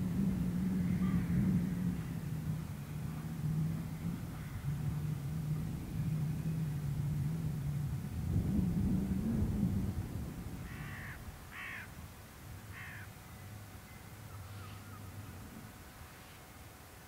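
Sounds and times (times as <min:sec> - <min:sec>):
steam train rumble: 0:00.0 - 0:17.0
crow cawing: 0:10.7 - 0:11.9, 0:12.7 - 0:13.1.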